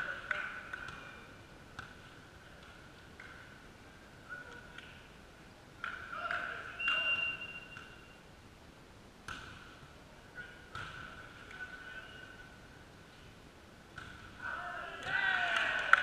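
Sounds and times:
referee's whistle: 0:06.8 - 0:08.2
volleyball smacks echoing: 0:09.2 - 0:09.8, 0:10.7 - 0:11.2, 0:13.9 - 0:16.0.

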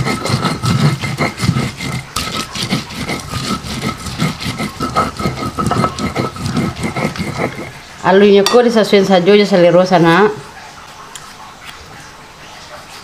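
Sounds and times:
stone pestle grinding chillies: 0:00.0 - 0:08.6.

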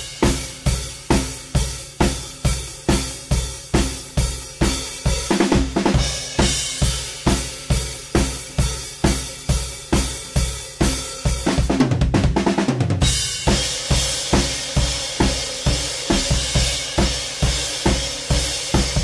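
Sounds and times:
drum kit rock beat: 0:00.0 - 0:19.0
drum fill: 0:11.4 - 0:19.0.

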